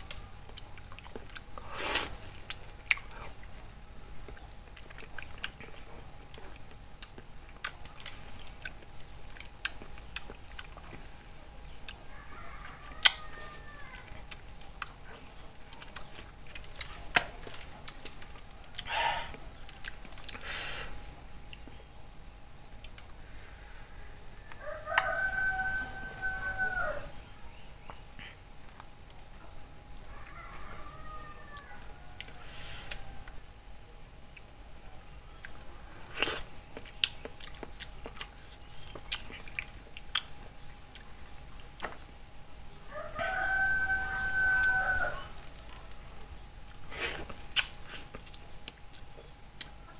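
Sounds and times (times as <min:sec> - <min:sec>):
chewing mango with wet crunches: 0:00.0 - 0:13.4, 0:14.0 - 0:23.2, 0:34.2 - 0:42.8, 0:44.6 - 0:49.9
wet mouth chewing and sucking: 0:35.4 - 0:42.0, 0:46.7 - 0:49.8.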